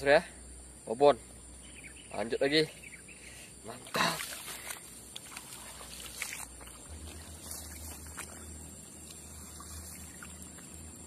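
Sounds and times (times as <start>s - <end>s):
faint water sounds: 2.1s - 11.0s
low steady hum: 2.7s - 11.0s.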